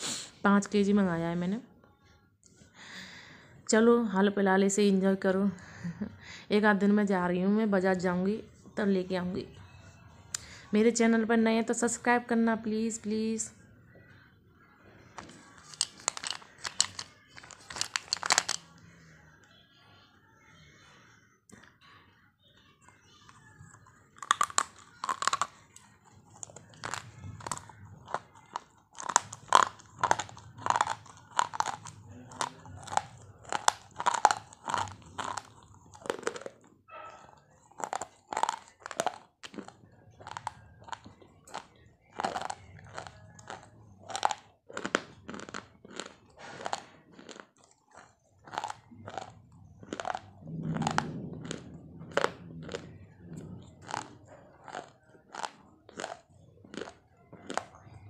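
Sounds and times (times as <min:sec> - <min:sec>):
chalk being chewed: 0:15.2 - 0:18.8, 0:23.3 - 0:58.0.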